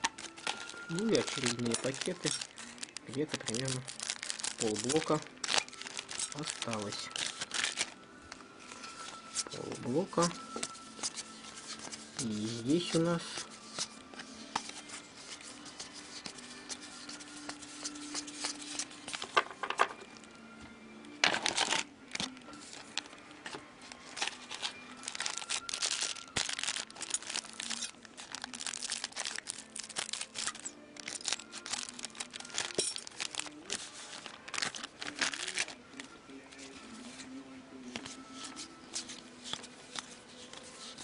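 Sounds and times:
wrappers tearing and crinkling: 0:00.0 - 0:08.0, 0:08.8 - 0:14.0, 0:21.2 - 0:36.7.

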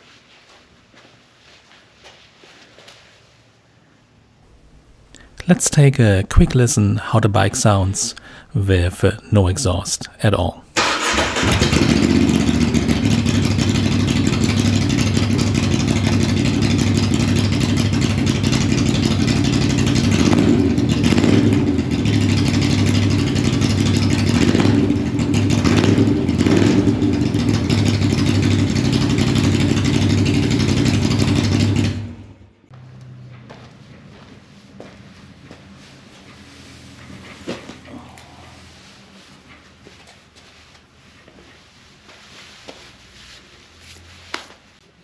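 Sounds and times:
motorcycle throttle blips: 0:10.8 - 0:33.7
motorcycle engine idling: 0:10.9 - 0:32.9.

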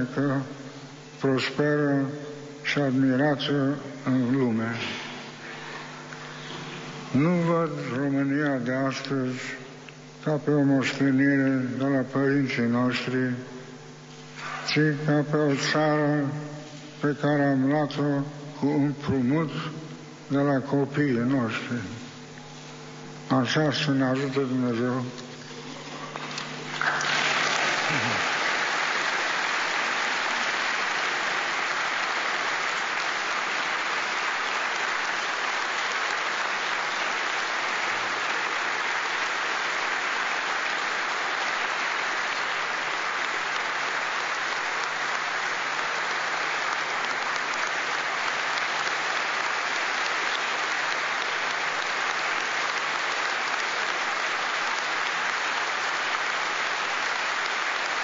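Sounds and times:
large audience applauding: 0:25.5 - 0:58.0.

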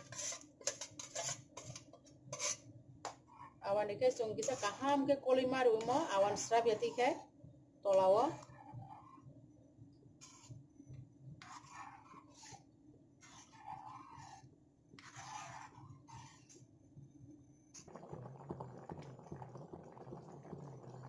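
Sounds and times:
metal ladle stirring in pan: 0:00.0 - 0:03.6, 0:04.2 - 0:07.2, 0:10.2 - 0:10.6, 0:11.4 - 0:16.6
curry bubbling: 0:00.0 - 0:07.3, 0:11.4 - 0:16.6, 0:17.8 - 0:21.0.

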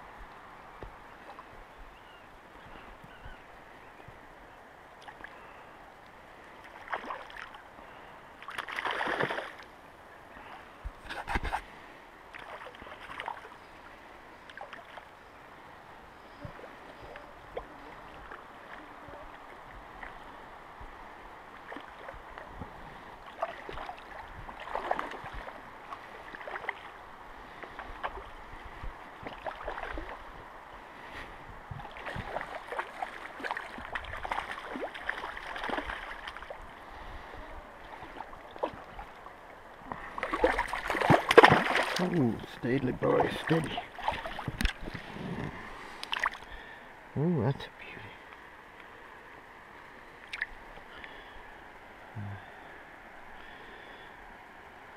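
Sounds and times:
shallow river water running: 0:00.0 - 0:54.9
water splashes: 0:06.4 - 0:09.8, 0:10.4 - 0:15.2, 0:16.4 - 0:48.3, 0:50.1 - 0:51.4.

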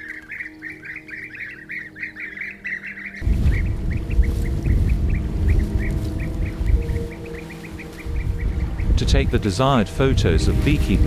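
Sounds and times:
birds chirping: 0:00.0 - 0:11.0
low rumble: 0:03.2 - 0:11.0.

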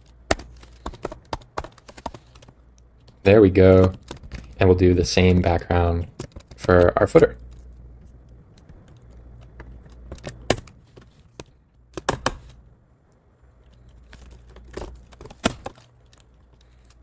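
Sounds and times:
computer keyboard typing: 0:00.0 - 0:04.6.

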